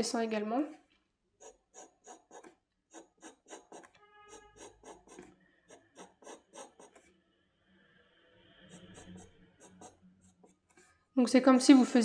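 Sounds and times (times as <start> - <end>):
pencil scratching on paper: 1.4 - 7.1, 8.6 - 11.1
pencil squeak: 1.4 - 7.1, 8.7 - 10.9.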